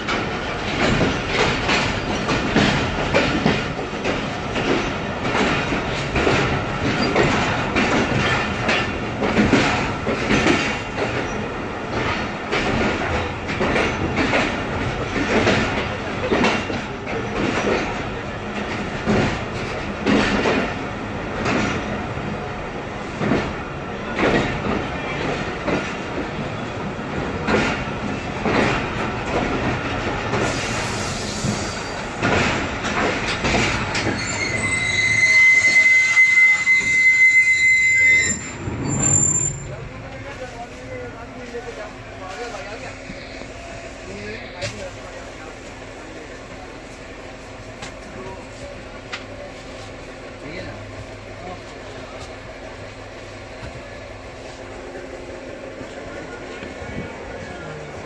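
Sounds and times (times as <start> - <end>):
train wheels clacking: 0.0 - 22.1, 23.0 - 43.7
high metallic wheel squeal: 34.1 - 39.8.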